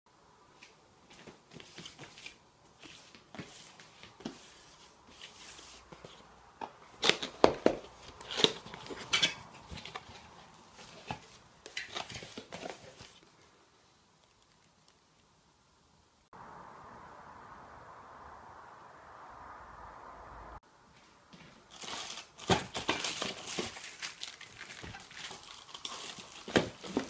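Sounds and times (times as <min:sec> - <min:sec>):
cardboard flaps rustling: 0:21.7 - 0:27.0.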